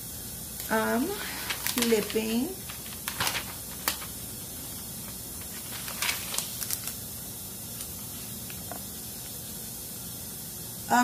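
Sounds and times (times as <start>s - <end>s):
steady background hiss: 0.0s - 11.0s
thin pages turning: 1.2s - 7.1s, 7.7s - 9.3s.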